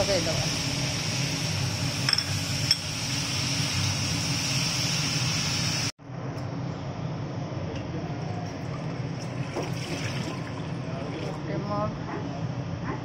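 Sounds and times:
steady background hum: 0:06.0 - 0:13.0.

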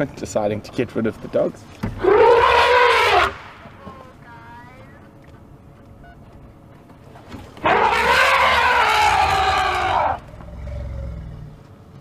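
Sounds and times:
elephant trumpeting: 0:02.0 - 0:03.5, 0:07.6 - 0:10.9.

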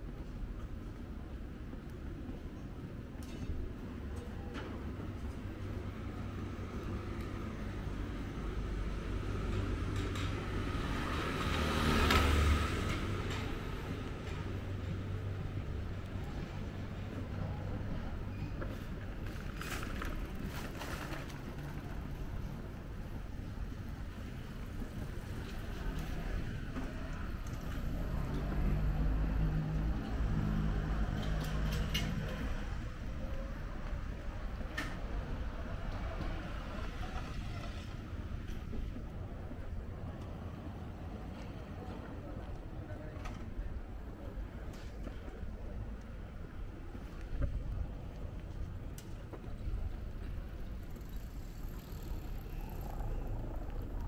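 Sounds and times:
low street hum: 0:00.0 - 0:54.0
car passing close by: 0:10.7 - 0:13.0.

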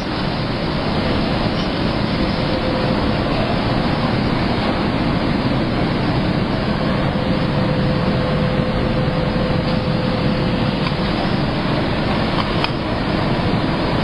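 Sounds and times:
pressing machine rushing air: 0:00.0 - 0:14.0.

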